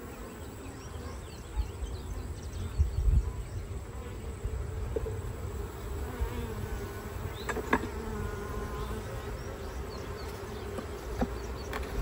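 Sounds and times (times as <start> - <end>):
honey bees buzzing: 0.0 - 12.0
hive tool and frames clicking: 10.6 - 12.0.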